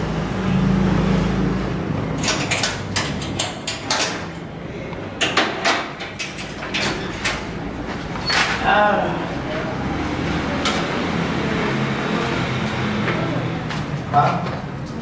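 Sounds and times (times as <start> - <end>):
metal gate clanking and rattling: 2.2 - 4.4, 5.2 - 7.6.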